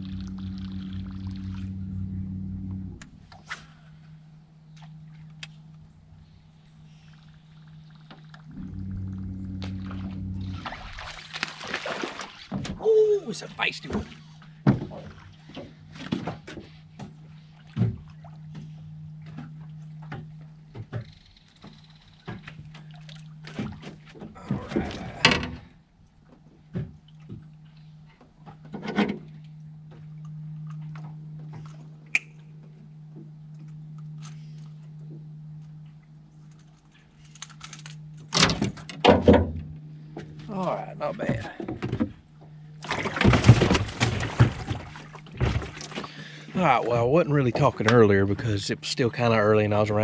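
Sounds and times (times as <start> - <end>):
steady low hum: 0.0 - 50.0
water splashing: 7.1 - 16.5, 42.8 - 48.5
knocks and thumps on a boat: 12.1 - 12.9, 13.6 - 30.1, 38.3 - 46.9.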